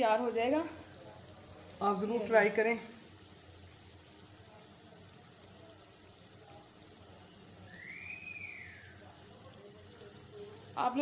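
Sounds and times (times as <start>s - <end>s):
oil sizzling: 0.0s - 11.0s
short whistle: 7.6s - 9.0s.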